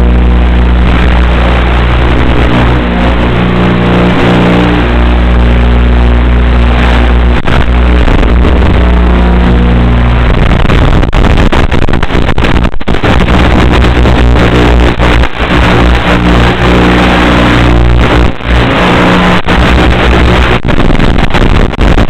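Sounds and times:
aircraft motor hum: 0.0 - 10.6
crackling static: 0.0 - 22.0.

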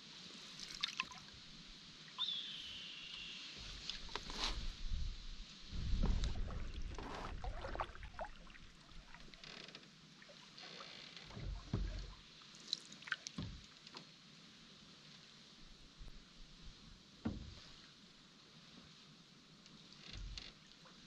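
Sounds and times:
paddle splashing water: 5.7 - 13.8
knocks against canoe hull: 11.3 - 12.2, 13.4 - 13.7, 17.2 - 17.6.

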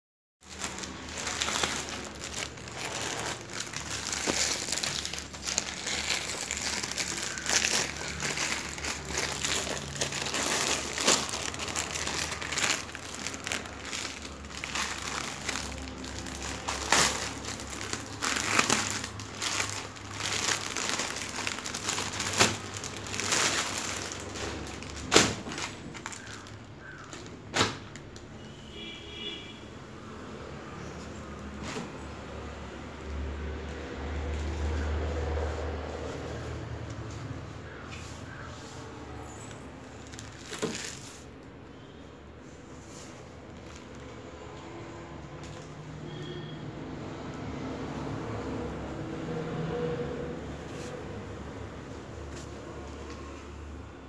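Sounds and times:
plastic packaging crinkling: 0.4 - 28.3, 39.4 - 41.5, 42.8 - 44.4, 45.4 - 45.8.

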